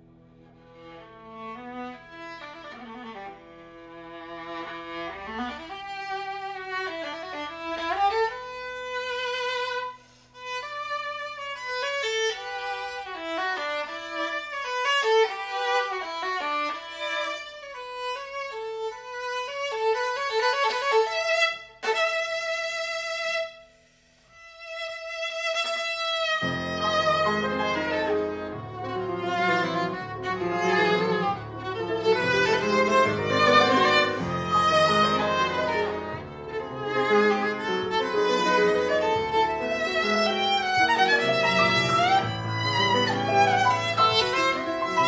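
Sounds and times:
viola melody with vibrato: 24.6s - 45.0s.

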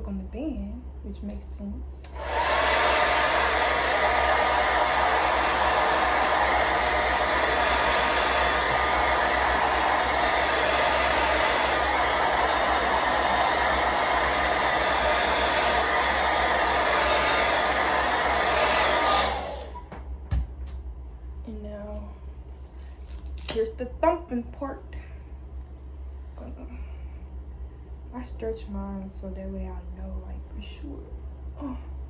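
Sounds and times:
hair dryer blowing: 2.0s - 20.5s
motor whine: 2.1s - 20.2s.

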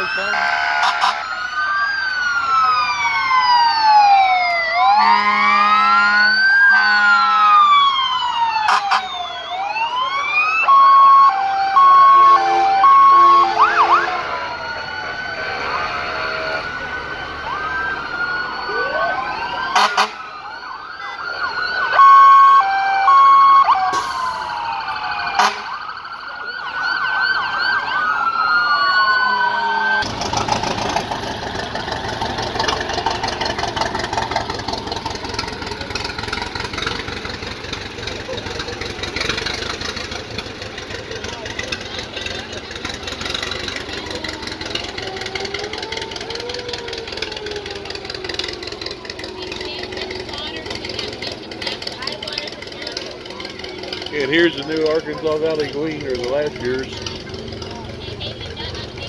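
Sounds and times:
fire truck sirens wailing: 0.0s - 59.0s
short horn blasts: 0.3s - 1.2s, 5.0s - 7.6s, 11.4s - 14.2s, 19.8s - 20.2s, 25.4s - 25.8s.

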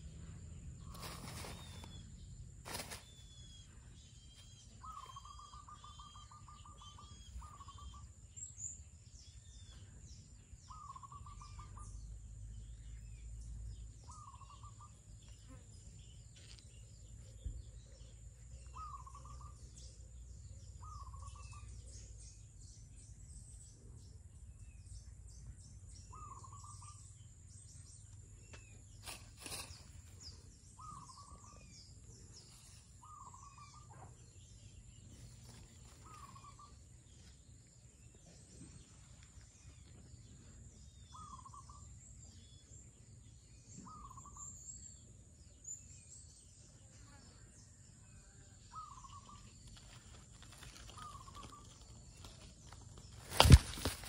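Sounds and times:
bird calling: 0.8s - 8.8s, 10.6s - 12.0s, 14.0s - 15.6s, 18.6s - 19.9s, 26.1s - 27.2s, 28.5s - 37.3s, 41.0s - 42.5s, 43.7s - 44.9s, 48.6s - 54.0s
high bird chirps: 0.8s - 8.8s, 35.6s - 36.8s.

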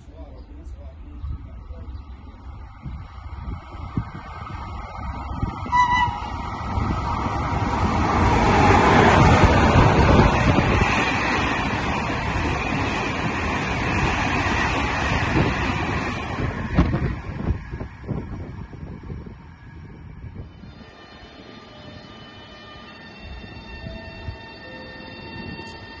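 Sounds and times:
freight train passing: 0.0s - 26.0s
train horn note: 5.6s - 6.4s.

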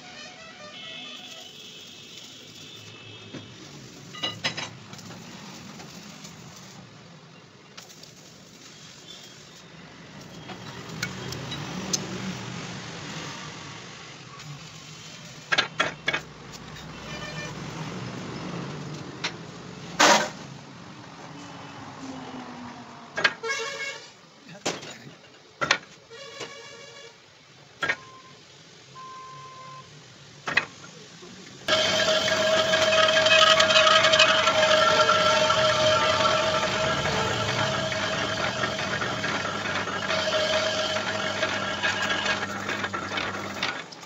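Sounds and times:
lathe running with hum: 31.7s - 43.8s.

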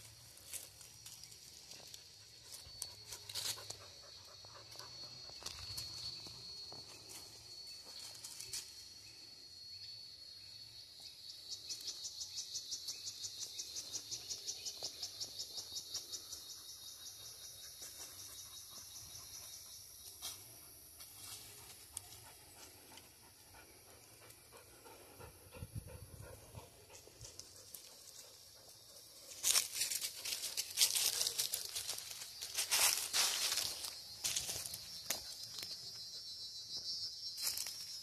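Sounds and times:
insects buzzing: 0.0s - 38.0s
dog panting: 22.2s - 28.8s
rustling in dry leaves: 29.3s - 35.2s.

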